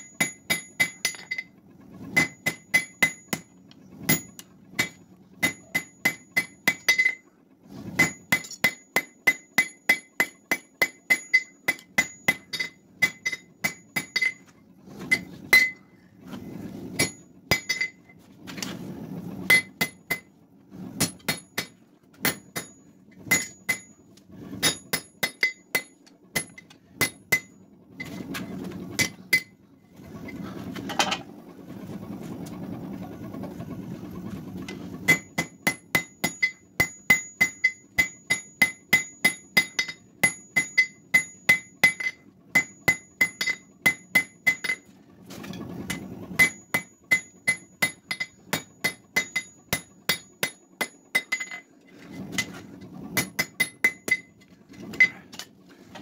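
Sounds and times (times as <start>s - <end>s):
hammer blows ringing on anvil: 35.1s - 44.8s.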